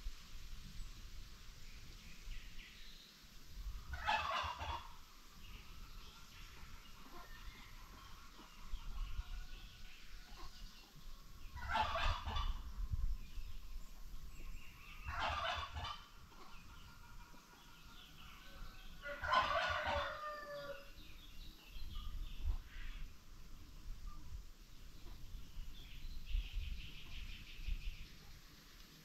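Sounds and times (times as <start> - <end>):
background bird chatter: 0.6 - 29.0
poultry stuttering calls: 11.6 - 12.6, 15.1 - 18.2.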